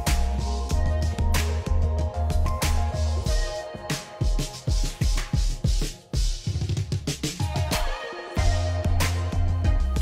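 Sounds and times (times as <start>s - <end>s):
bass line: 0.0s - 3.4s, 8.4s - 10.0s
steady drum beat: 0.0s - 10.0s.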